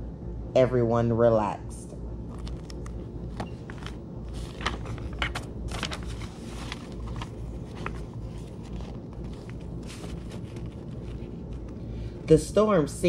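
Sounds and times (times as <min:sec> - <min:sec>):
steady low hum: 0:00.0 - 0:13.0
book pages rustling: 0:02.3 - 0:12.0.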